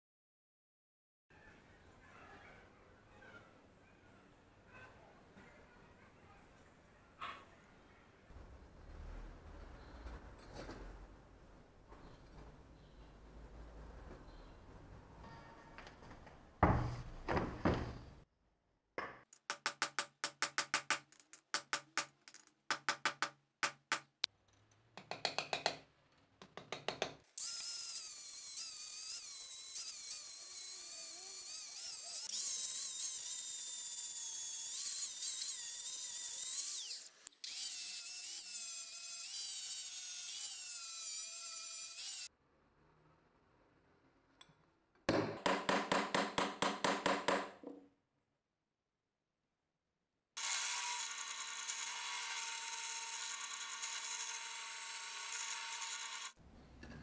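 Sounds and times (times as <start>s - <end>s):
angle grinder grinding metal: 27.4s - 42.3s, 50.4s - 56.4s.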